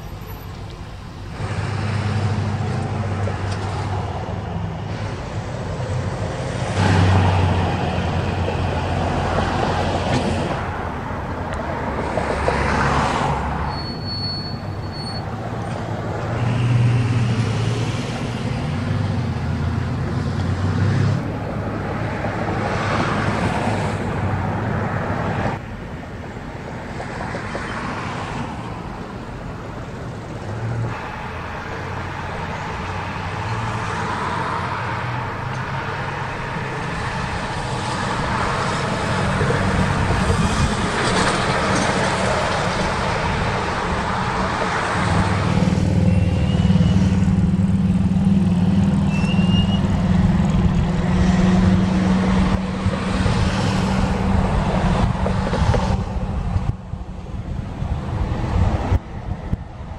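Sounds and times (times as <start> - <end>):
vehicles driving past: 0.0 - 59.9
tyres on pavement: 26.8 - 59.9.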